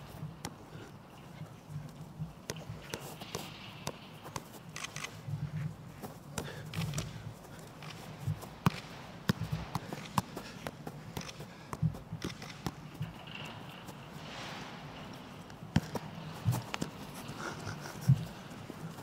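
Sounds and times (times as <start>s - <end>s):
football thuds: 8.2s - 13.3s, 15.7s - 17.0s.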